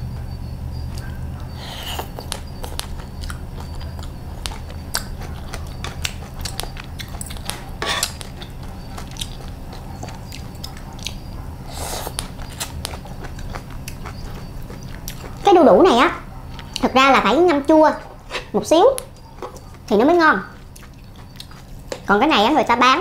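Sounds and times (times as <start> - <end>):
chewing crunchy food: 0.9 - 23.0
slurping: 1.5 - 15.4.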